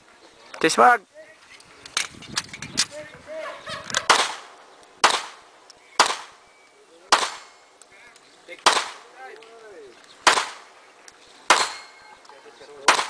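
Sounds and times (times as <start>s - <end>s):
pistol shots with echo: 4.0s - 6.4s, 7.1s - 7.6s, 8.6s - 9.1s, 10.2s - 10.7s, 11.5s - 12.0s.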